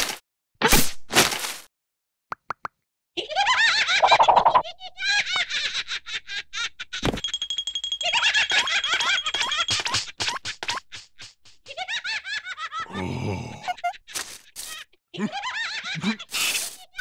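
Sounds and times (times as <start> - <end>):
high-pitched cartoon laughter: 3.2 - 7.0, 14.7 - 17.0.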